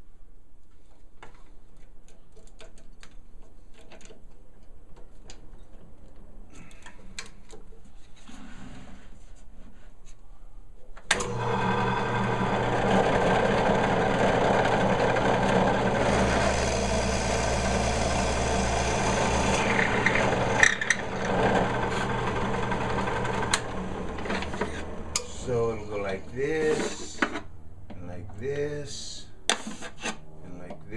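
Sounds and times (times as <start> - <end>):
drill press running: 11.1 - 25.9.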